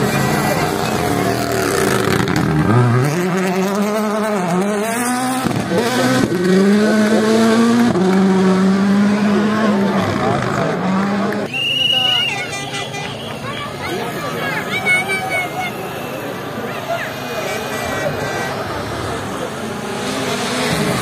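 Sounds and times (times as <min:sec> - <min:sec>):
rally car engine: 0:00.0 - 0:11.5, 0:16.3 - 0:21.0.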